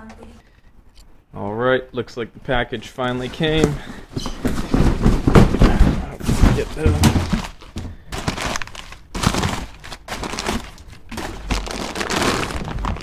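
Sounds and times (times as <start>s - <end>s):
packing paper rustling: 3.3s - 13.0s.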